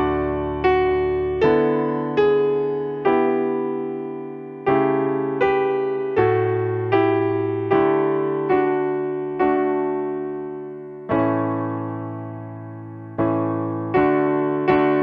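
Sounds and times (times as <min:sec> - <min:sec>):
slow solo piano music: 0:00.0 - 0:15.0.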